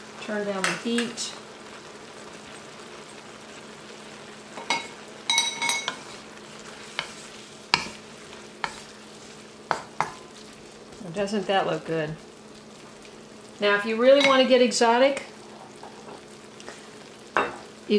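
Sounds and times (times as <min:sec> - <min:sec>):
vegetables sizzling in a wok: 0:00.0 - 0:17.9
wooden spoon scraping a pan: 0:05.6 - 0:11.2.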